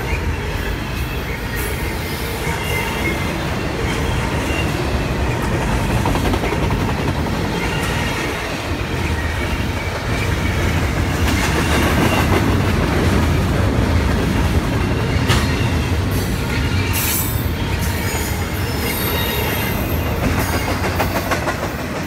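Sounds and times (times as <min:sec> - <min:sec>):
high wheel squeals: 0:00.0 - 0:05.4, 0:14.8 - 0:20.9
clickety-clack over rail joints: 0:00.0 - 0:22.0
train wheels rumbling on rails: 0:00.0 - 0:22.0.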